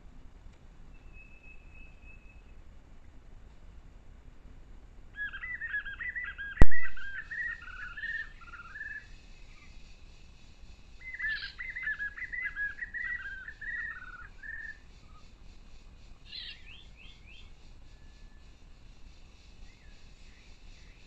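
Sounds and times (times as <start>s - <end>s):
bird singing short falling notes: 6.6s - 8.8s.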